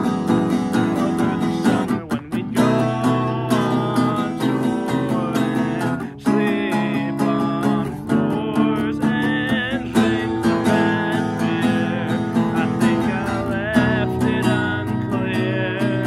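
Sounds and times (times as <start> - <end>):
acoustic guitar strumming: 0.0 - 16.0
harmonica melody: 0.0 - 16.0.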